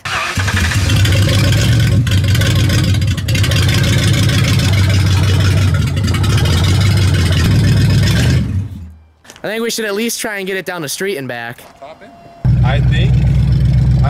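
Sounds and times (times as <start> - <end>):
engine running with low hum: 0.4 - 9.0, 12.4 - 14.0.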